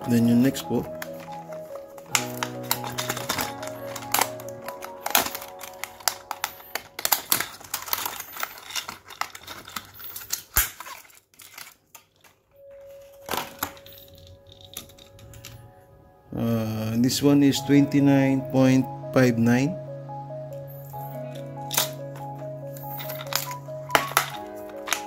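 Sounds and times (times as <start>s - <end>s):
soft background music: 0.0s - 8.9s, 12.6s - 25.0s
plastic box clicking and crinkling: 0.2s - 15.6s, 21.7s - 25.0s.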